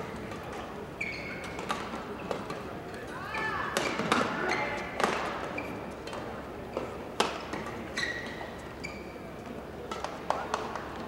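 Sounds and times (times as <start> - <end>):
shoe squeaks on court floor: 1.0 - 1.6, 5.5 - 5.9, 7.9 - 9.2.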